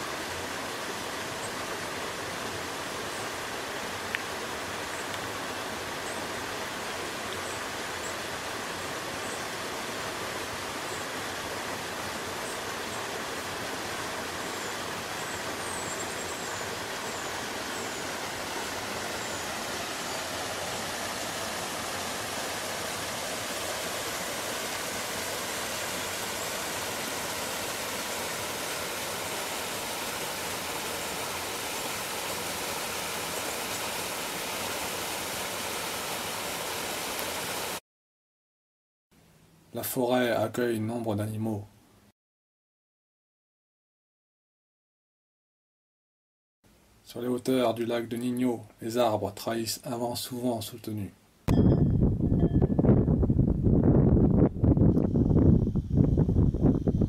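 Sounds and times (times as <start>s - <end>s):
stream rushing over rocks: 0.0s - 37.8s.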